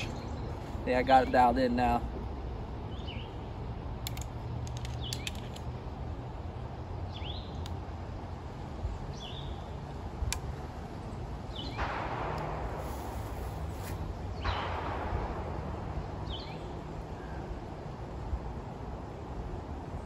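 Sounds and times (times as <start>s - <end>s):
low outdoor rumble: 0.0s - 20.0s
light clicks: 4.0s - 5.8s
short rising hiss: 12.6s - 14.2s.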